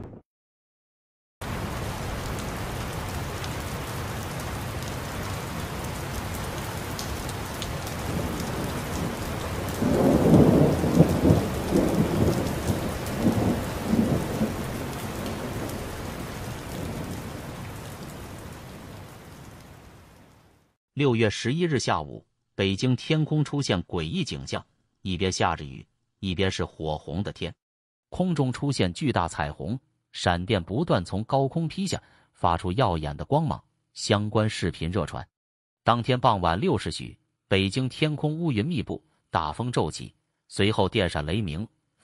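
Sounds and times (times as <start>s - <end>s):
steady rain: 1.4s - 20.7s
thunder crack and rumble: 8.0s - 17.7s.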